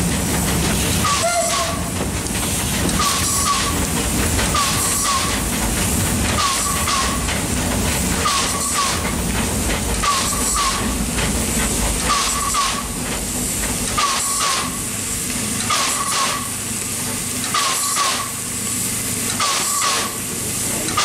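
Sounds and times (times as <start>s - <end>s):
steam hiss: 0.0s - 21.0s
steam locomotive puffs: 0.0s - 21.0s.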